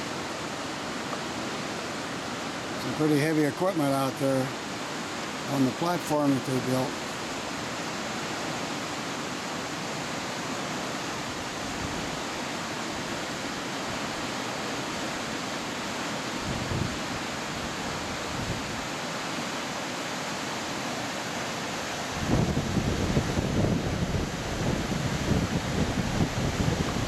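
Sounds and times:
water rushing through dam: 0:00.0 - 0:27.0
wind buffeting microphone: 0:16.4 - 0:18.9, 0:22.1 - 0:27.0.

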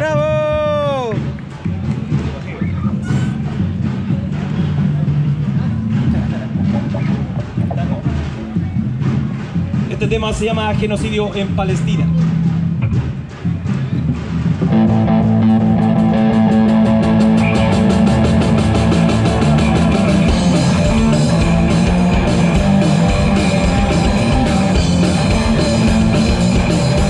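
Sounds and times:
fast drum beat: 0:00.0 - 0:27.0
distorted electric guitar chords: 0:14.6 - 0:27.0.

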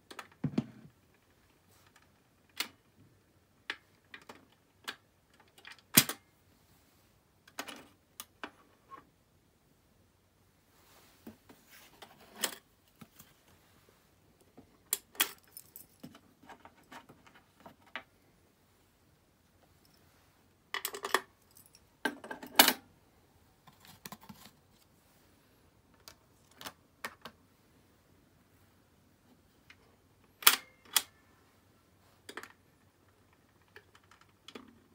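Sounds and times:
vinyl records clicking and clinking: 0:00.0 - 0:06.3, 0:29.6 - 0:31.4, 0:32.2 - 0:34.9.

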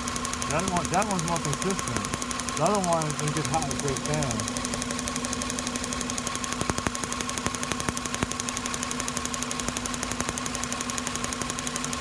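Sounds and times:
engine idling: 0:00.0 - 0:12.0
steady hum: 0:00.0 - 0:12.0
spark gap snapping: 0:06.2 - 0:10.6.

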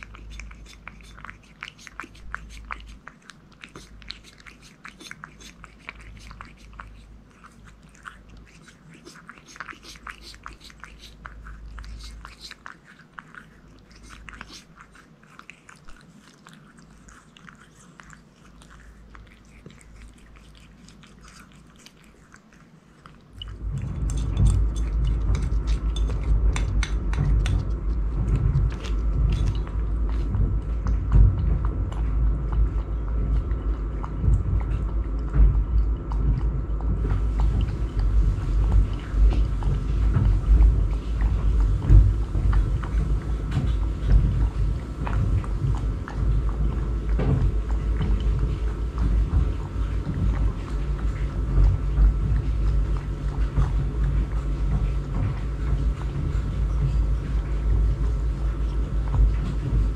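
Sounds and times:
rubbing against microphone: 0:00.0 - 0:33.7
cat chewing and lapping: 0:00.0 - 0:59.9.

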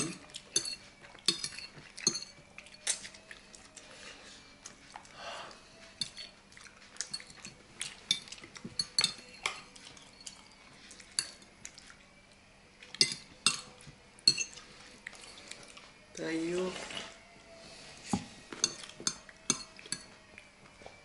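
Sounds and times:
forks clinking on plates and bowls: 0:00.0 - 0:03.3, 0:05.9 - 0:11.5, 0:13.0 - 0:15.4, 0:18.6 - 0:20.2.

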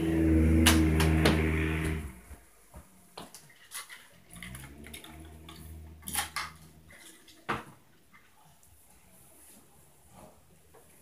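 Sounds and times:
knocks and clatter upstairs: 0:00.0 - 0:02.4.

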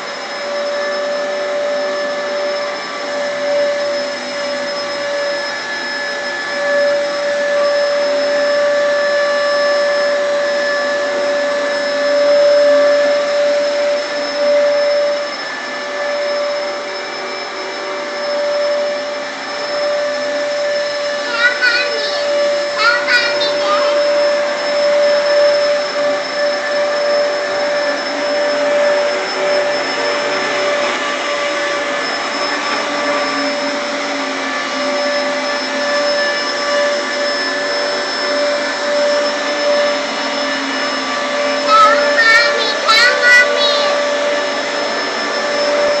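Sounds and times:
vacuum cleaner running: 0:00.0 - 0:46.0
child singing or squealing: 0:21.2 - 0:24.2, 0:41.6 - 0:44.2.

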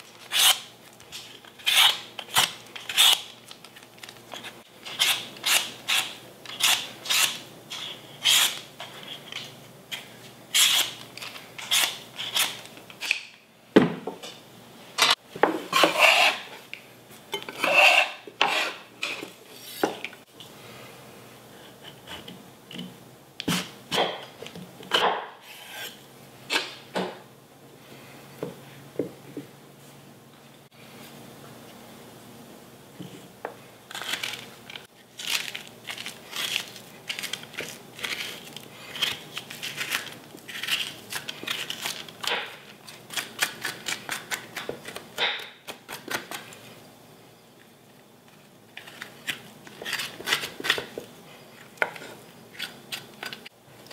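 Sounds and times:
peeler rasping squash skin: 0:00.0 - 0:03.3, 0:04.4 - 0:13.2, 0:33.9 - 0:45.0, 0:48.8 - 0:51.0
scraper scraping wooden board: 0:15.7 - 0:16.5.

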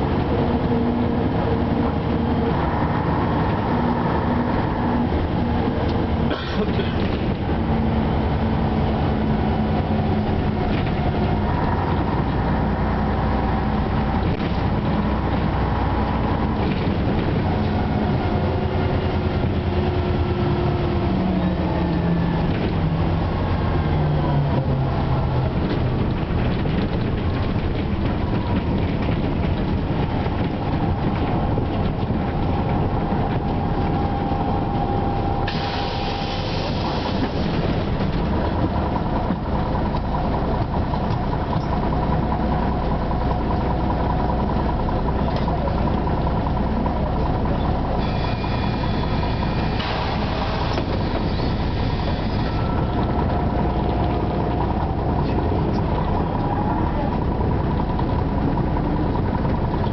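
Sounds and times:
bus diesel engine: 0:00.0 - 0:59.9
compressed air hissing: 0:35.5 - 0:37.3.

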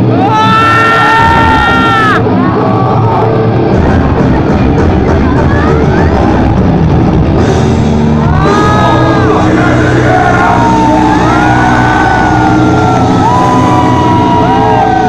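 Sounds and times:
live metal band playing: 0:00.0 - 0:15.0
high sliding guitar tones: 0:05.7 - 0:15.0.

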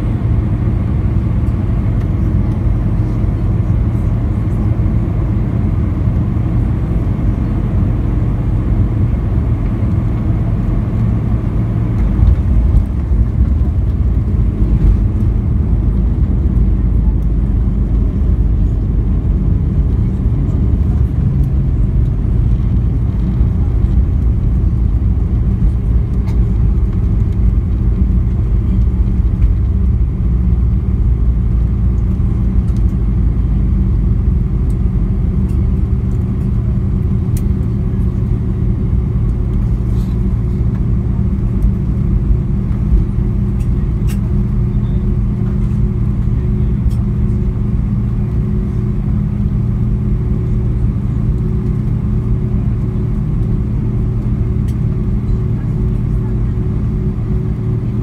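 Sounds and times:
engine hum: 0:00.0 - 0:58.0
jet engines and wheels rumbling: 0:00.0 - 0:58.0.

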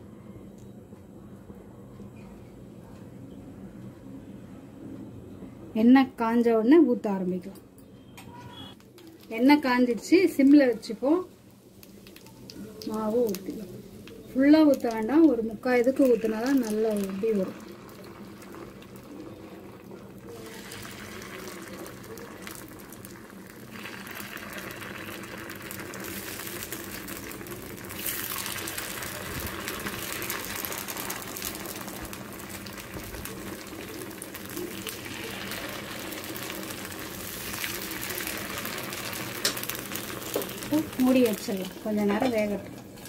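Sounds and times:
batter sizzling in hot oil: 0:08.6 - 0:43.0.

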